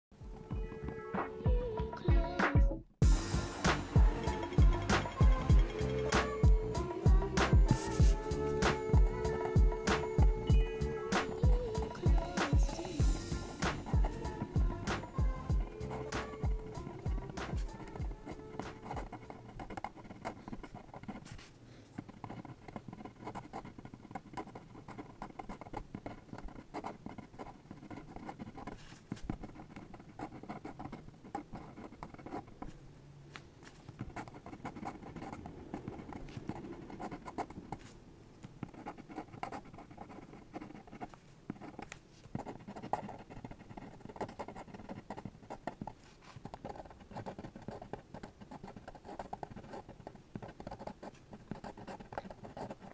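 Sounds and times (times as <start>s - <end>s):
pen nib scratching on paper: 4.2s - 10.5s, 11.2s - 32.8s, 33.6s - 38.0s, 38.6s - 52.9s.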